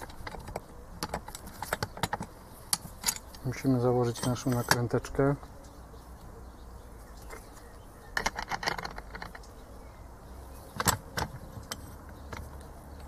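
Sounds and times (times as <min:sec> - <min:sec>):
small steel parts clinking: 0:00.0 - 0:05.1, 0:08.2 - 0:09.5.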